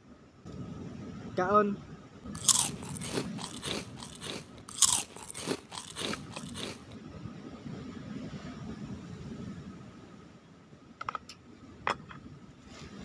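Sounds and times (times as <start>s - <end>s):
crunchy food chewing: 2.4s - 7.0s.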